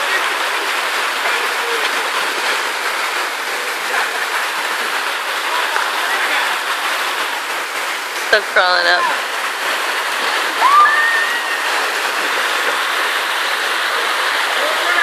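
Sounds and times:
water pouring into pool: 0.0 - 15.0
water rushing down slides: 0.0 - 15.0.

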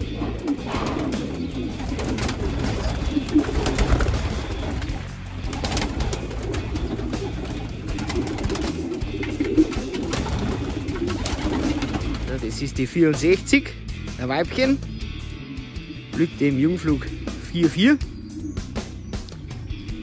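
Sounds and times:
background music: 0.0 - 20.0
pigeons cooing: 0.0 - 20.0.

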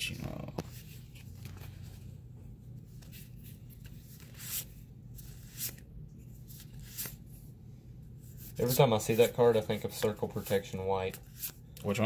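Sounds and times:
cards swishing: 2.8 - 7.4.

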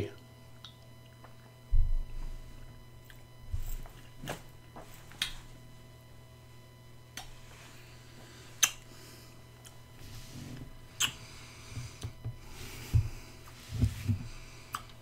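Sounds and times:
low room hum: 0.0 - 15.0
lip smacks and mouth clicks: 8.6 - 8.8, 14.7 - 15.0.

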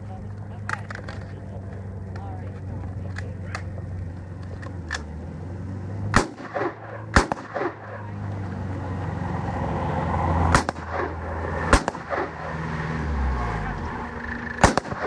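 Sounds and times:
gunshots with echo: 6.1 - 8.2, 10.4 - 12.5, 14.6 - 15.0.

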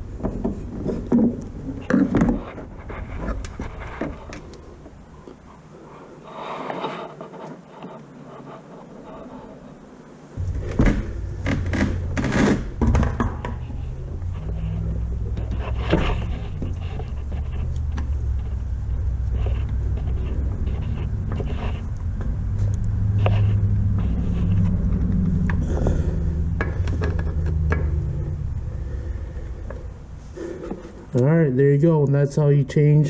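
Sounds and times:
low rumble: 10.4 - 31.2.

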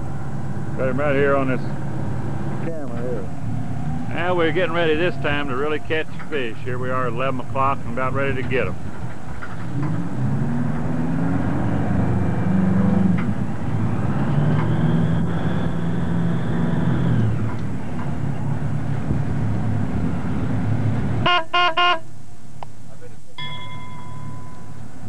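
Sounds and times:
short ringing tones: 23.4 - 24.9.

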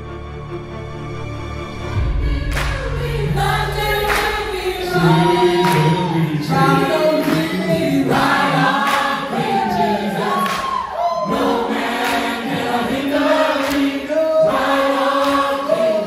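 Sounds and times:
backing music: 0.0 - 16.0
drum hits: 2.0 - 6.9
choir singing held notes: 2.0 - 16.0.

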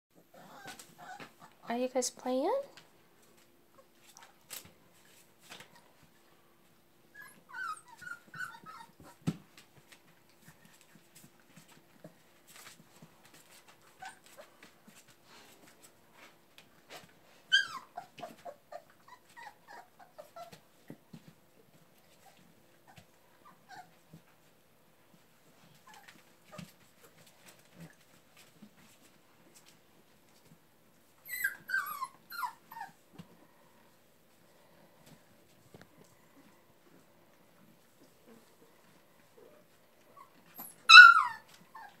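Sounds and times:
puppies whimpering: 0.2 - 1.6, 7.1 - 9.2, 17.5 - 20.6, 31.2 - 33.0, 40.1 - 42.0.

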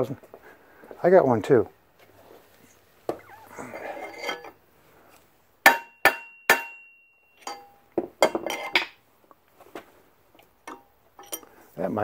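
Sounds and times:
light metal taps and clinks: 6.6 - 9.0, 10.4 - 11.6.

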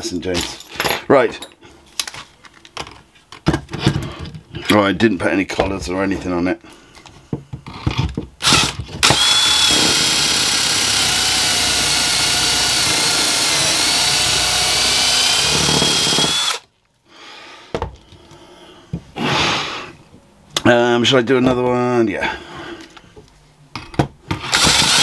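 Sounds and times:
cordless drill whining: 8.4 - 16.6, 24.5 - 25.0.

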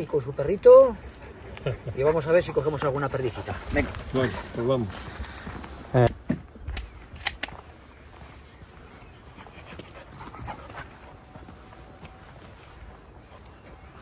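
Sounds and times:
dog panting: 3.4 - 5.2, 9.3 - 11.3
sharp clicks: 6.6 - 7.6.

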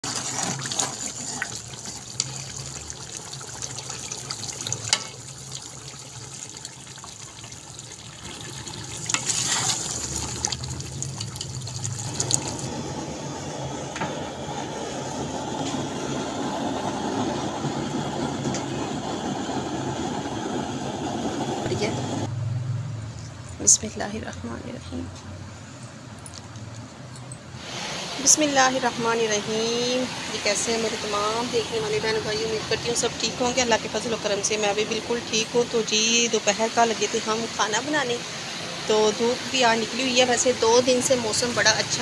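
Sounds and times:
curry bubbling in a pot: 0.0 - 13.1.

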